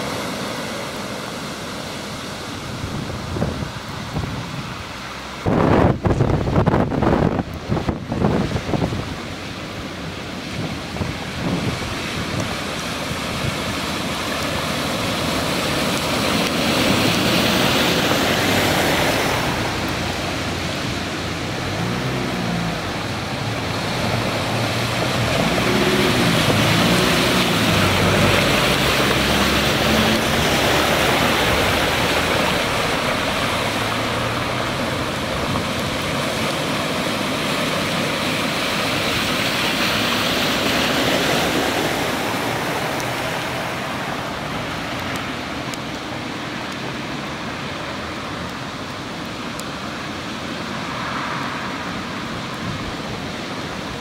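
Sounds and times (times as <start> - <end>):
tyres splashing through water: 0.0 - 54.0
car engine passing: 11.8 - 45.4, 50.6 - 52.5.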